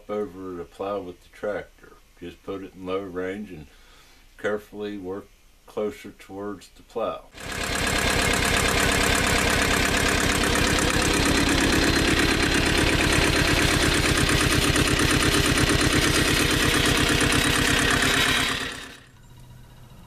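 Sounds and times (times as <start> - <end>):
tractor diesel engine running: 7.4 - 20.0.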